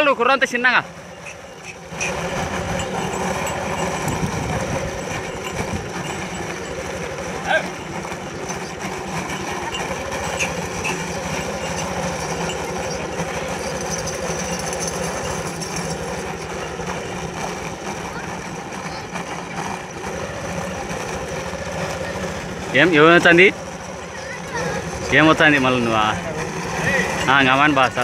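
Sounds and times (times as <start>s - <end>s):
heavy load scraping on road: 0.0s - 28.0s.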